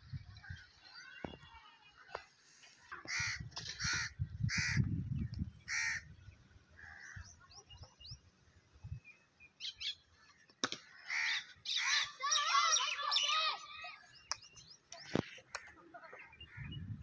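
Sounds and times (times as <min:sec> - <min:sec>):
crow cawing: 0:03.0 - 0:04.8, 0:05.7 - 0:06.1, 0:10.9 - 0:12.1.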